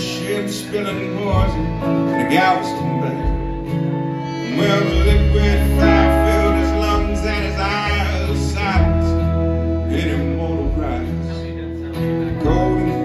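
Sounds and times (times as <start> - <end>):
accordion: 0.0 - 13.0
country rock band playing: 0.0 - 13.0.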